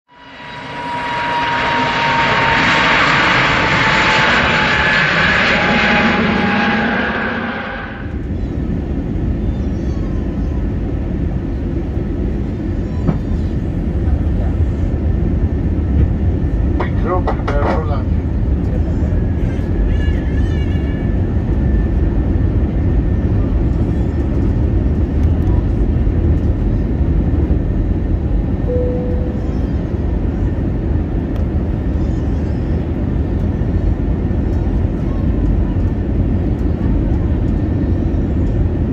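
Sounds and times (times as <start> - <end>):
airplane cabin rumble: 0.1 - 38.9
chime-like tone: 28.7 - 29.5.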